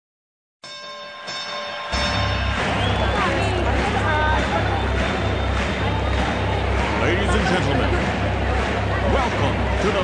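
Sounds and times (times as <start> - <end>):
sustained bell-like tones: 0.6 - 3.8
deep bass: 2.0 - 10.0.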